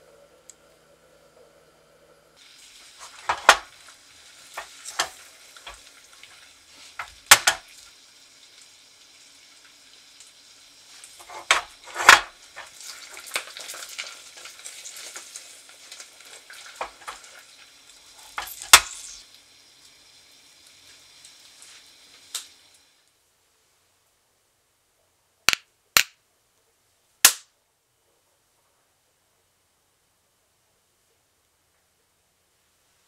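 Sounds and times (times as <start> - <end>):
syrup boiling and crackling: 0.0 - 23.4.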